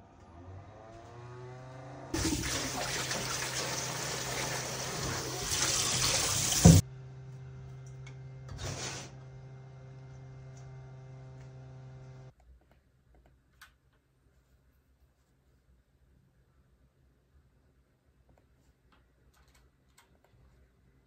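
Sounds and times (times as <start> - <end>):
water splash: 2.2 - 6.8
tap running into metal bowl: 6.0 - 6.8.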